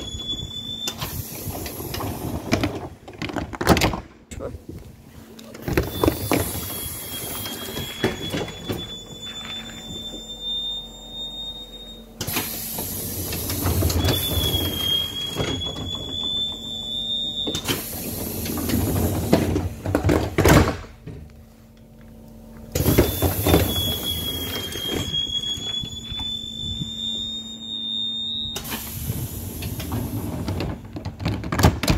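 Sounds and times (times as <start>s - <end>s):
doors moving and closing with thuds: 0.0s - 21.4s, 22.6s - 31.9s
high whining tone: 22.8s - 29.2s.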